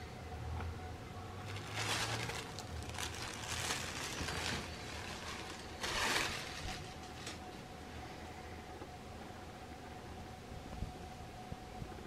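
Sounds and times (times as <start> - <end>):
t-shirt fabric rustling: 1.4 - 7.5.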